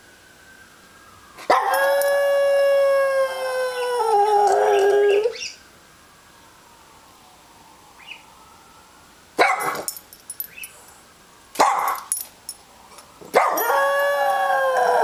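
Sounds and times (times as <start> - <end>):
dog howling: 1.4 - 5.4, 13.3 - 15.0
dog barking: 9.4 - 9.9, 11.6 - 12.0, 13.3 - 13.7.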